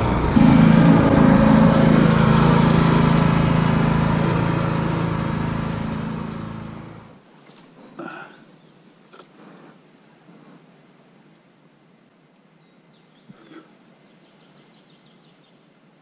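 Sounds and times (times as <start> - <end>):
off-road vehicle engine running: 0.0 - 7.2.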